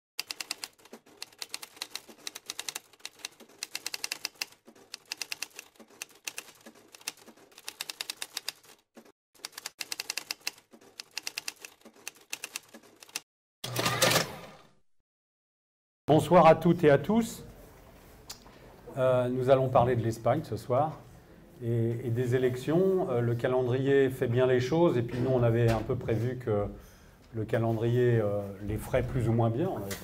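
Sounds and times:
typewriter keystrokes: 0:00.2 - 0:14.3
typewriter clunk: 0:10.3 - 0:14.6.

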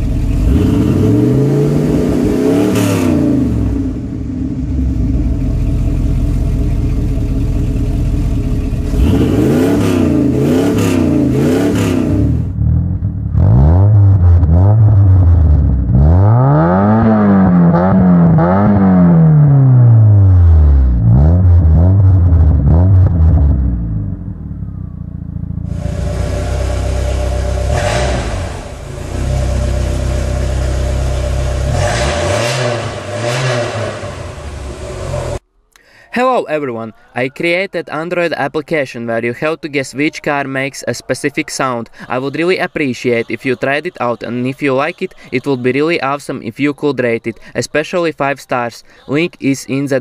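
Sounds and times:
car engine revving: 0:00.0 - 0:35.5.

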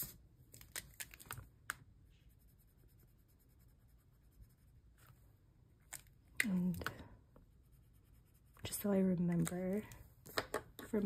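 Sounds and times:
pencil scratching on paper: 0:02.2 - 0:04.9, 0:07.6 - 0:09.2.

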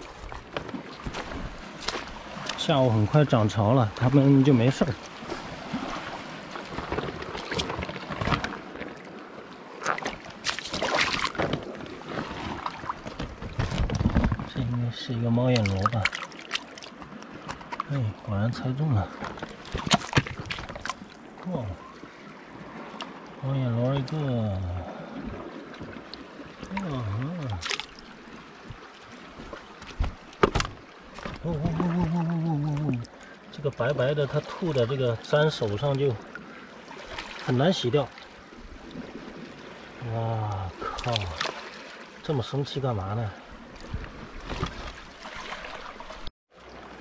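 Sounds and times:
seawater sloshing among rocks: 0:00.0 - 0:47.0.

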